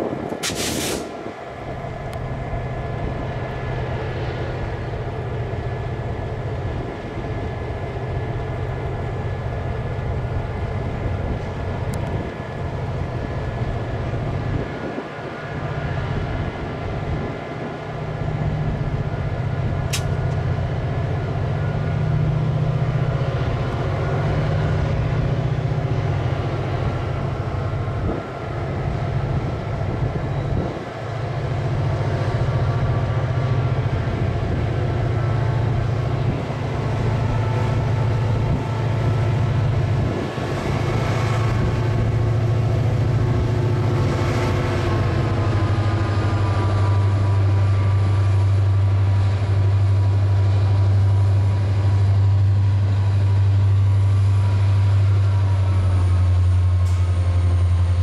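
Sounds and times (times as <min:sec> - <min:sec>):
diesel locomotive engine running: 0:00.0 - 0:58.0
sharp click: 0:00.3 - 0:01.2, 0:19.9 - 0:20.4.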